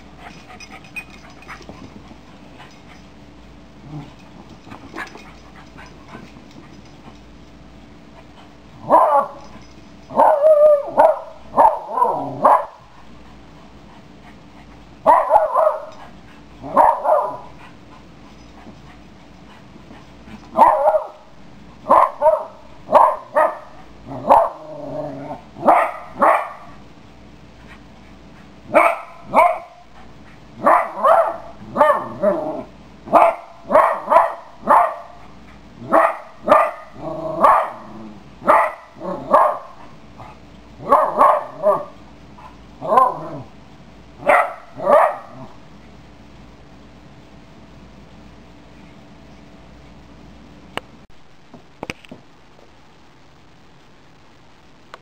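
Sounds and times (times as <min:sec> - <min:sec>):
puppy barking: 0:08.8 - 0:09.5, 0:10.1 - 0:12.8, 0:15.1 - 0:16.0, 0:16.6 - 0:17.5, 0:20.6 - 0:21.3, 0:21.9 - 0:24.6, 0:25.6 - 0:26.8, 0:28.7 - 0:29.8, 0:30.6 - 0:32.3, 0:33.1 - 0:35.2, 0:35.9 - 0:42.0, 0:44.2 - 0:45.5.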